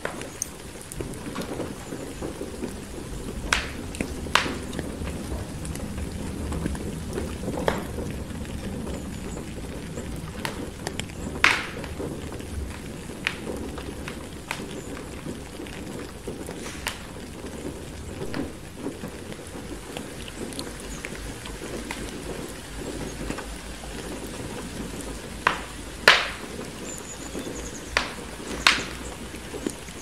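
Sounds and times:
steady rain: 0:00.0 - 0:30.0
wood fire crackling and popping: 0:00.0 - 0:30.0
low rumble: 0:02.6 - 0:13.8.

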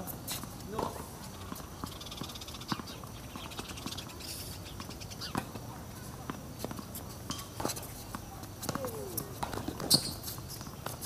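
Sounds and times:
tennis balls bouncing on hard court: 0:00.3 - 0:04.2, 0:04.8 - 0:11.0
tennis balls struck with racquets: 0:04.8 - 0:11.0.

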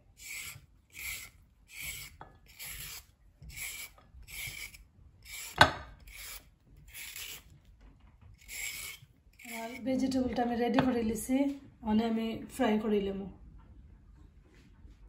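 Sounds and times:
peeler scraping a carrot: 0:00.0 - 0:07.7, 0:08.4 - 0:10.9.

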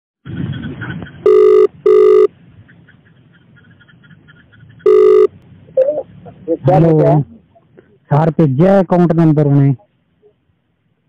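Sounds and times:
telephone ringback tone: 0:01.2 - 0:02.3, 0:04.8 - 0:05.9
faint phone line hiss: 0:01.3 - 0:02.3, 0:04.8 - 0:06.0.

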